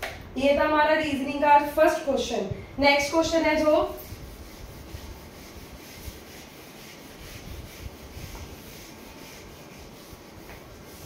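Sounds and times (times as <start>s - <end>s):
duster rubbing on whiteboard: 3.2s - 11.0s.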